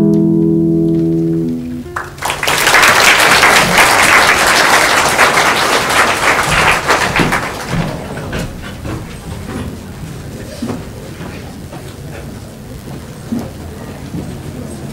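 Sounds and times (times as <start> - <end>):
classical guitar chord ringing: 0.0 - 2.2
audience applause: 1.8 - 12.0.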